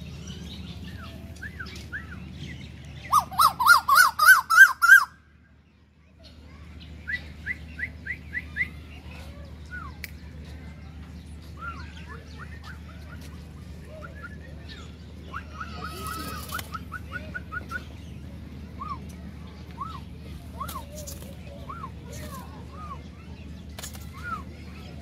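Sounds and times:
small birds chirping: 0.0s - 25.0s
koel calling: 3.1s - 5.1s.

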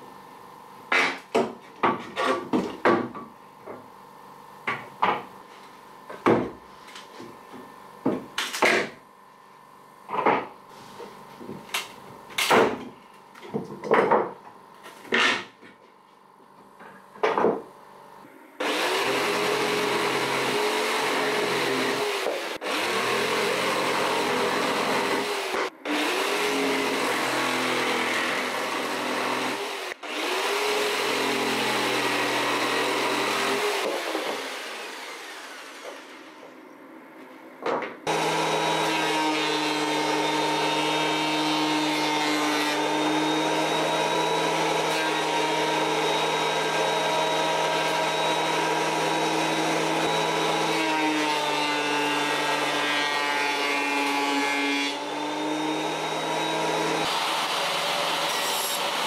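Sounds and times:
electric jigsaw cutting wood: 18.6s - 36.5s, 38.0s - 59.0s
thickness planer whining: 18.6s - 36.8s, 38.1s - 59.0s.

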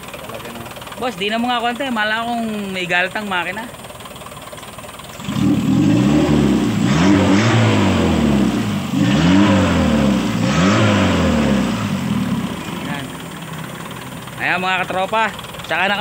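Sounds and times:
car engine revving: 5.1s - 15.8s.

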